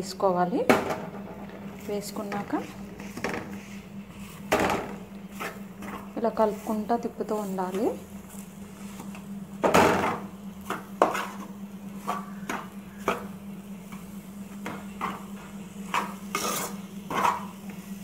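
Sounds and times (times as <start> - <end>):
steel spoon scraping metal pan: 15.9 - 17.5.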